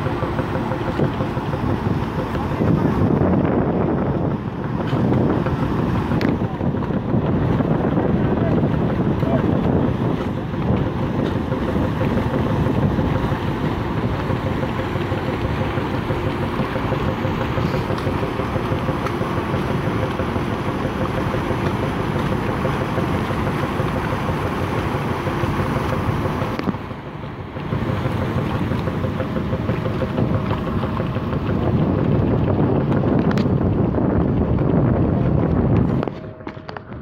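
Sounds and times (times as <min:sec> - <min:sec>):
propellers churning water: 0:00.0 - 0:37.0
ship engine hum: 0:00.0 - 0:37.0
wind buffeting microphone: 0:00.0 - 0:37.0.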